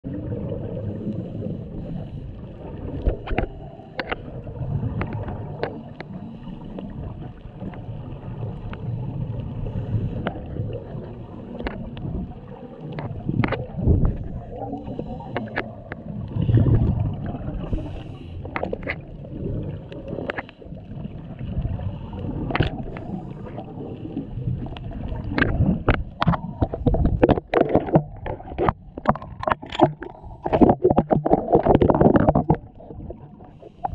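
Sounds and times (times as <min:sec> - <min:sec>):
low underwater rumble: 0:00.0 - 0:33.9
regulator exhale bubbles: 0:07.9 - 0:33.9
sharp clicks and knocks: 0:25.3 - 0:32.7.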